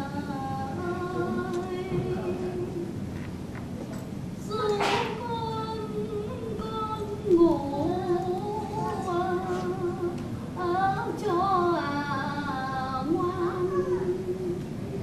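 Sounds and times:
woman singing long held notes: 0.0s - 3.0s, 4.4s - 14.7s.

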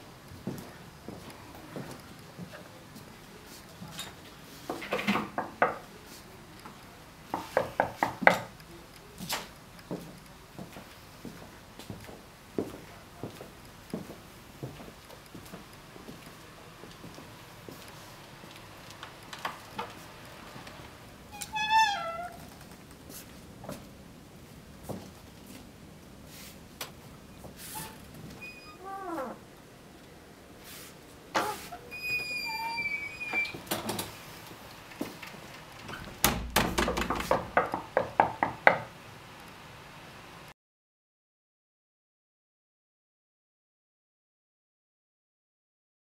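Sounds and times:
faint clicks and taps: 5.4s - 21.0s
footsteps on a hard floor: 9.9s - 16.3s.

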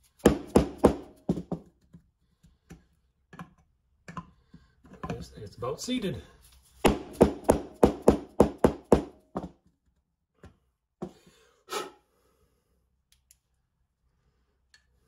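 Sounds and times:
mallet knocks: 6.9s - 9.5s.

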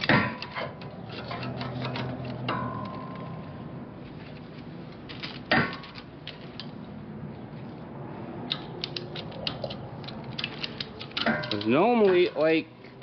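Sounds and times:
metal conveyor clanks and clicks: 0.0s - 3.3s, 10.4s - 12.6s.

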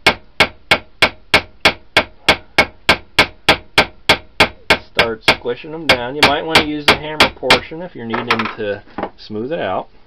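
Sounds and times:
hammer tapping a rivet: 0.0s - 7.6s.

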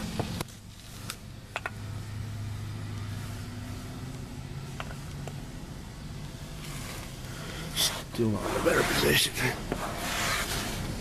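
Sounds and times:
handling clicks and taps: 1.5s - 1.8s.

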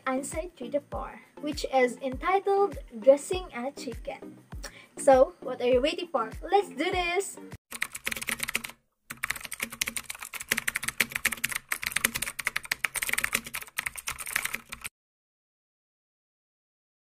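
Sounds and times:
keyboard typing clicks: 7.7s - 14.9s.

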